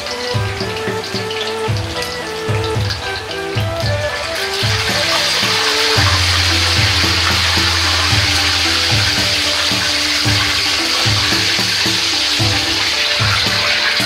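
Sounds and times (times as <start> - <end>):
background music: 0.0 - 14.0
deep-frying in hot oil sizzling: 0.0 - 14.0.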